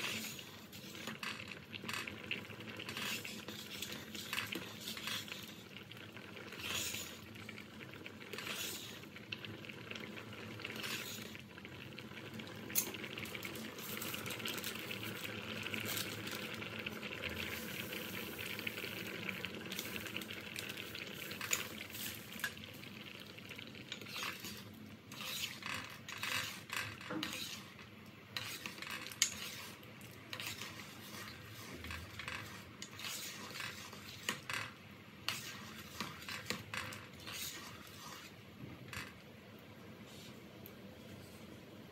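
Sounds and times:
ladle scraping a pot: 0.0s - 9.2s, 10.0s - 11.5s, 12.7s - 22.6s, 23.8s - 39.2s
sugar pouring into a pot: 0.0s - 27.7s.

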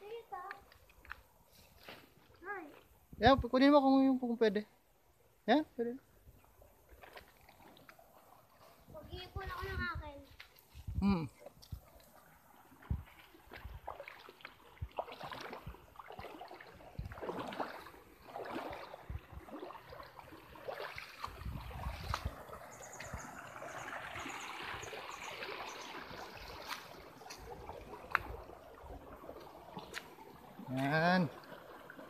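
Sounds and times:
creek water trickling: 0.0s - 32.0s.

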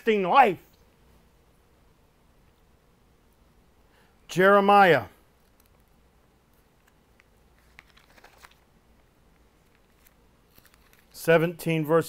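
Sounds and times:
book pages turning: 7.2s - 8.7s, 9.5s - 11.2s.

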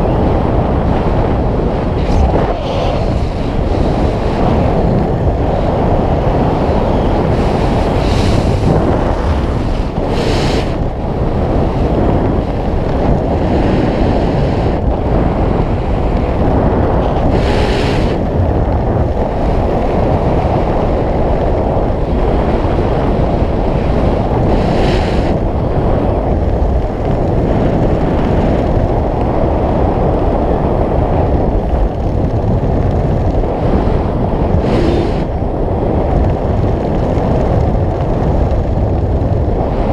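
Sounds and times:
hissing gusts: 0.0s - 19.7s, 33.6s - 35.7s
wind rumble on microphone: 0.0s - 39.9s.

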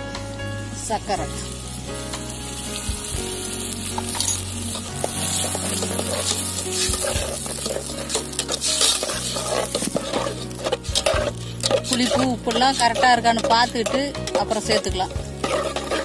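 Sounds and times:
sauce sizzling in a pot: 0.3s - 16.0s
ladle scraping and clinking pot: 3.9s - 16.0s.

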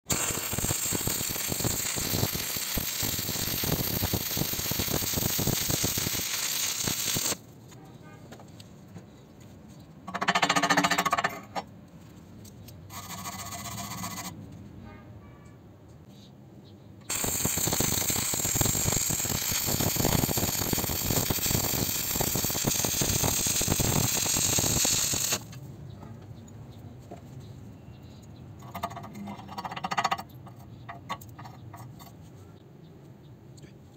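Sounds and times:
welding arc crackling: 0.1s - 7.4s, 17.1s - 25.6s.

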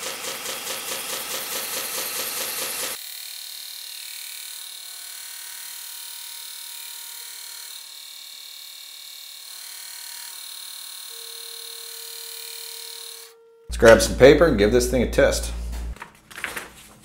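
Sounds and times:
belt grinder motor humming: 0.0s - 14.2s
lower motor tone: 13.3s - 16.0s.

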